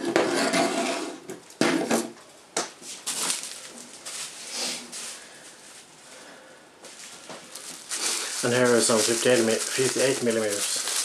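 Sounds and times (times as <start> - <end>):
bubble wrap rustling: 2.8 - 11.0.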